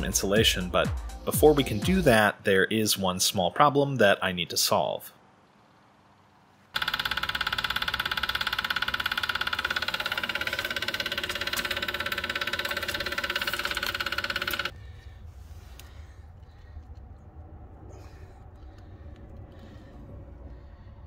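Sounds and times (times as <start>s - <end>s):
electric motor whine: 6.8s - 14.7s
vacuum pump knocking rattle: 6.8s - 14.7s.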